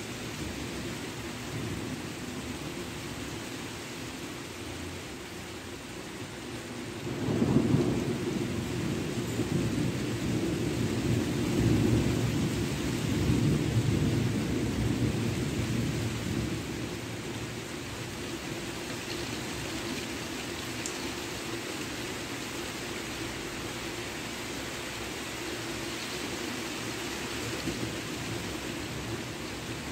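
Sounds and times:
steady rain: 0.0 - 29.9
rolling thunder: 7.1 - 16.7.

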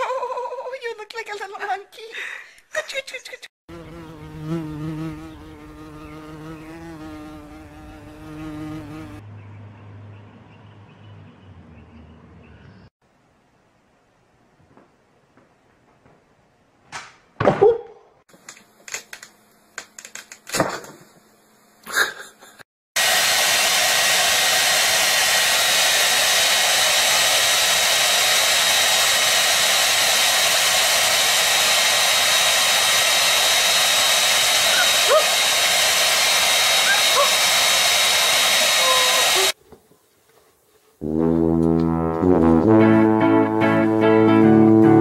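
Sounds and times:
hair dryer blowing: 23.0 - 39.6.

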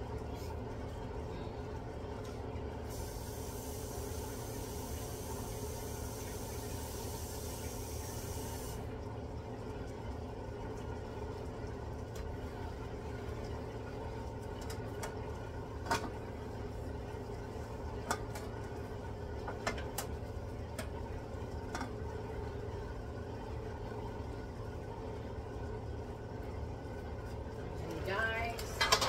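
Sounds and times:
pan simmering with steam: 1.7 - 28.4.

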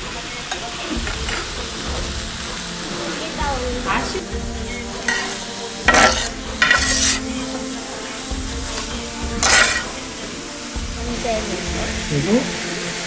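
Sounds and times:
chicken sizzling on griddle: 0.0 - 13.0
metal spatula scraping pan: 5.0 - 7.4, 8.8 - 10.0.

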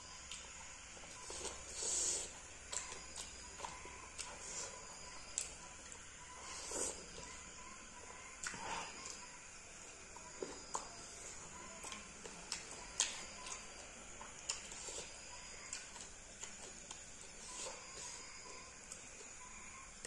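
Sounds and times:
fingers mixing wet food: 2.3 - 6.0.

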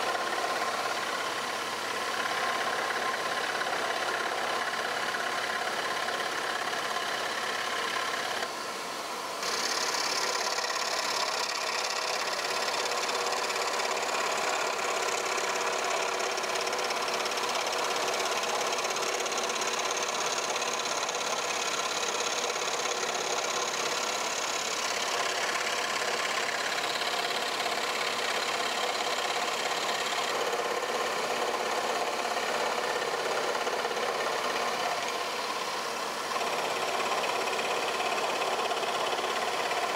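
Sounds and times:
scroll saw cutting plywood: 0.0 - 8.6, 9.2 - 39.9.

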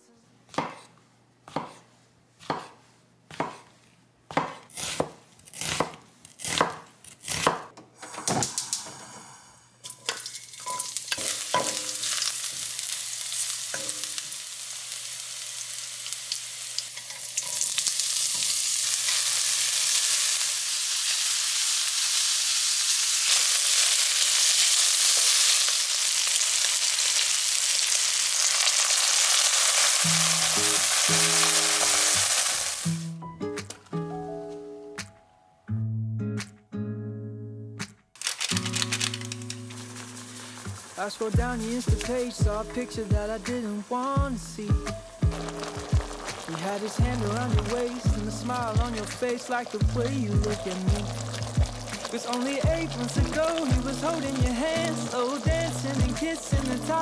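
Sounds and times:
knife chopping on wooden board: 0.5 - 0.9, 1.5 - 3.7, 4.3 - 7.7
garlic sizzling in oil: 9.9 - 33.1, 38.3 - 42.5, 43.5 - 57.0.

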